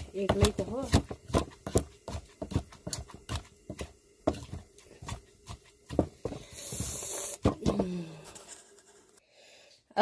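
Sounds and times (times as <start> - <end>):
pestle pounding in a mortar: 0.0 - 8.0.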